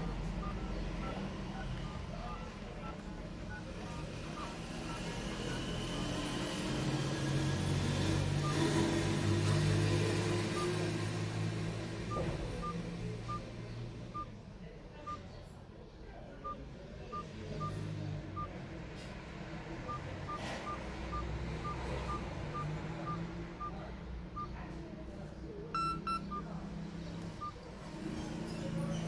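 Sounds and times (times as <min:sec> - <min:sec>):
keypad beeps: 0:00.4 - 0:01.2, 0:01.8 - 0:05.1, 0:08.4 - 0:08.7, 0:12.1 - 0:13.5, 0:16.4 - 0:18.6, 0:19.9 - 0:23.8, 0:25.7 - 0:26.6.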